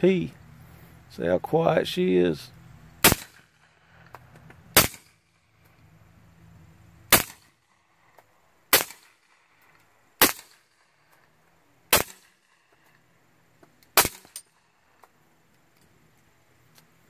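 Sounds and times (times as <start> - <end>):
suppressed pistol shots: 3.0 - 3.8, 4.7 - 5.4, 7.1 - 7.6, 8.7 - 9.5, 10.2 - 10.9, 11.9 - 12.6, 13.9 - 14.6.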